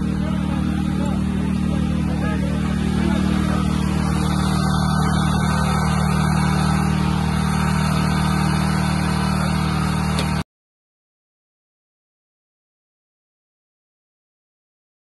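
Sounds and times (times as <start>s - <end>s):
vehicle engine idling: 0.0s - 10.4s.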